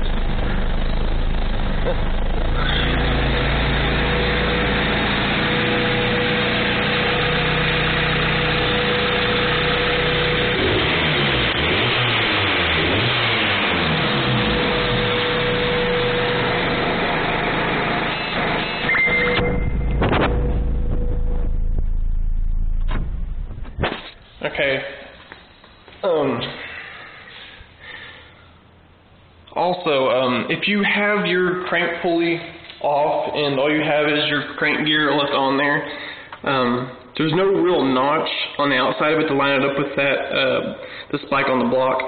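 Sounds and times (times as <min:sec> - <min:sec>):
car engine revving: 0:00.0 - 0:23.9.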